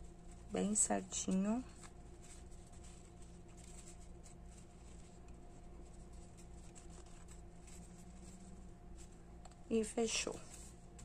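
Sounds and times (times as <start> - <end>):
ribbon rustling: 0.0 - 11.0
steady low hum: 0.0 - 11.0.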